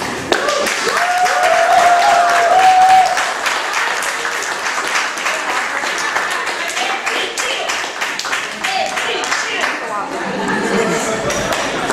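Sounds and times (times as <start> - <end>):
audience applauding: 0.0 - 9.9, 11.2 - 11.9
person cheering: 0.4 - 3.3.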